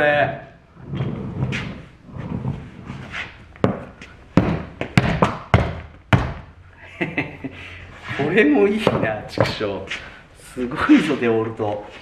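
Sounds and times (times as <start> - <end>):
tool bag knocking on hard floor: 3.6 - 6.4.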